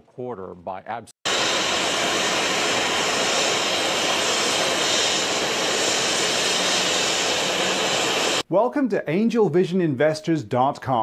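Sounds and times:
steady rushing hiss: 0:01.3 - 0:08.5.

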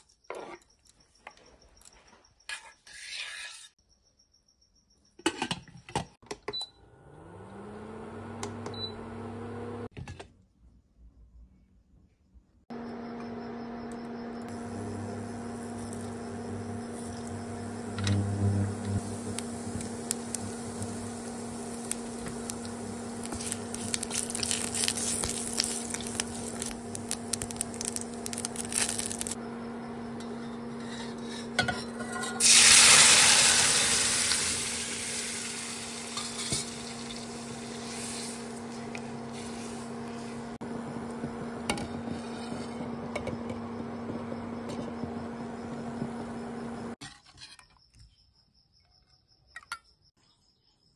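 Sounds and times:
spices sizzling in hot oil: 0:14.6 - 0:29.4, 0:32.4 - 0:40.3
loud burst of sizzling: 0:16.9 - 0:29.4, 0:32.4 - 0:38.6.

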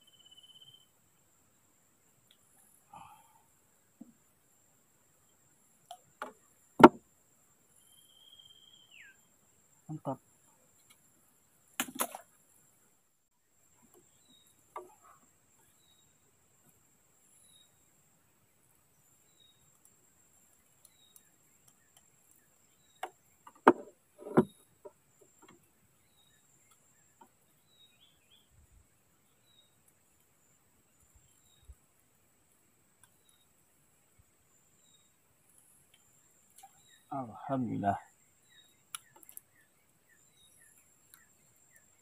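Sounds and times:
faint high chirp: 0:00.0 - 0:00.9, 0:07.8 - 0:09.3
steady high hiss: 0:00.0 - 0:42.0.

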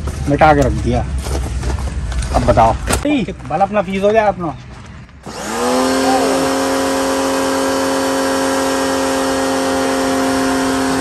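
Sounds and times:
pressure washer humming: 0:05.2 - 0:11.0.

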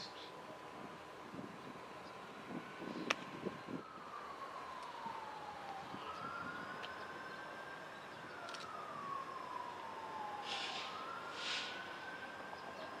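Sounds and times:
siren wailing: 0:03.7 - 0:13.0.

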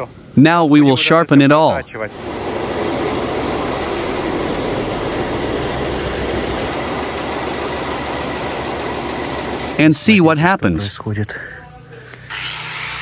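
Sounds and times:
metal lathe running: 0:02.1 - 0:10.5.

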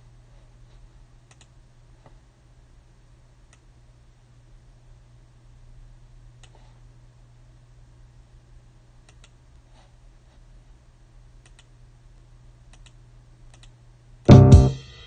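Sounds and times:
low steady hum: 0:00.0 - 0:15.0
mouse and keyboard clicks: 0:09.1 - 0:09.4.

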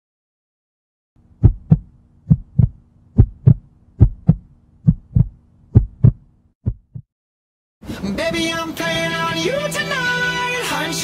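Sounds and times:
heartbeat double thumps: 0:01.3 - 0:07.1.

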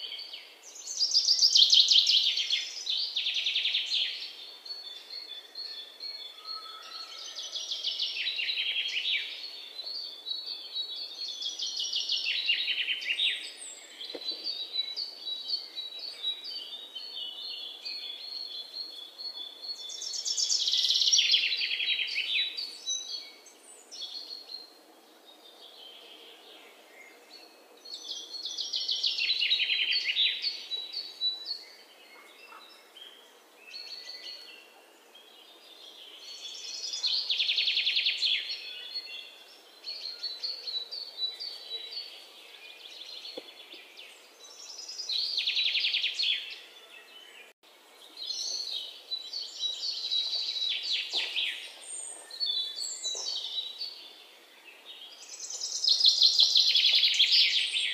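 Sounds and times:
birds chirping: 0:25.4 - 0:57.9.

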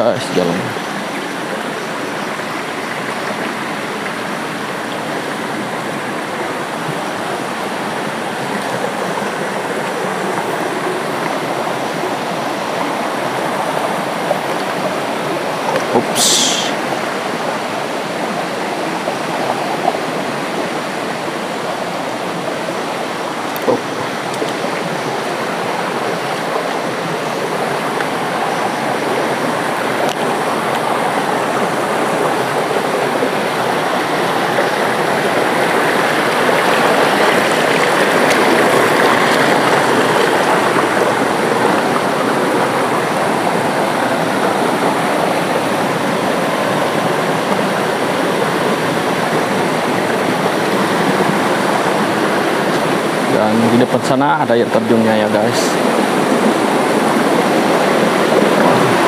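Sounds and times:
stream splashing over boulders: 0:00.0 - 0:59.0.

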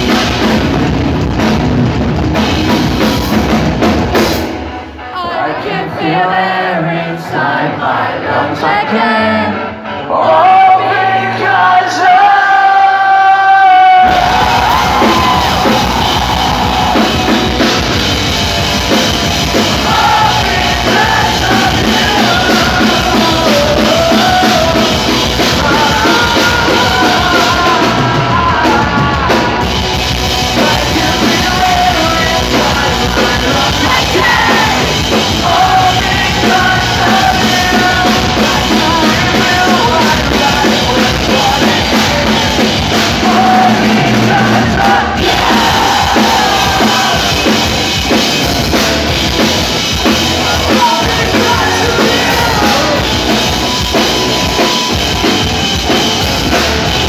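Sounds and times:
metal band playing: 0:00.0 - 0:06.8, 0:07.4 - 0:57.0
person yelling and singing: 0:50.4 - 0:53.2.

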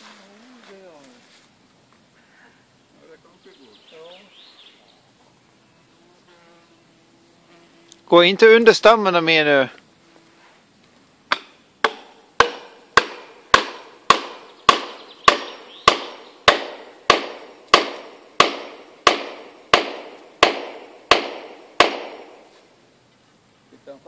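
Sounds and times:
hammer blows ringing: 0:11.3 - 0:22.3.

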